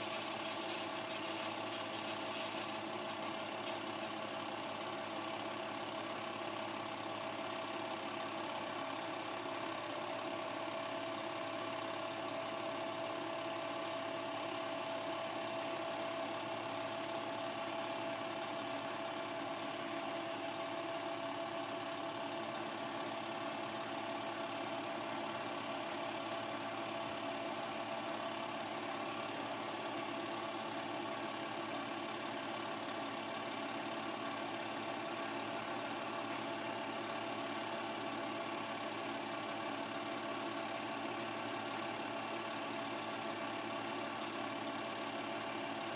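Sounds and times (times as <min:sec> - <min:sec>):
projector whine: 0:00.0 - 0:04.4
film projector chattering: 0:00.0 - 0:05.7.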